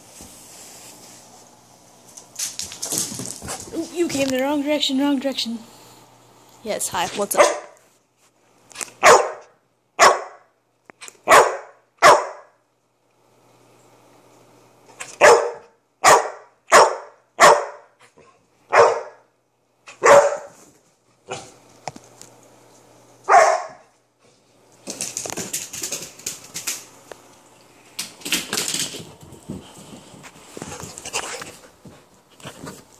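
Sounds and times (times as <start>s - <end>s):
puppy barking: 7.3s - 7.8s, 9.0s - 10.5s, 11.2s - 12.6s, 15.1s - 17.9s, 18.7s - 19.3s, 19.9s - 20.6s, 23.3s - 23.9s.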